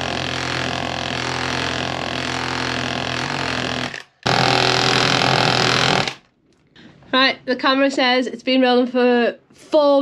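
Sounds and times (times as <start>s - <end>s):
cordless power tool running: 0.0s - 6.2s.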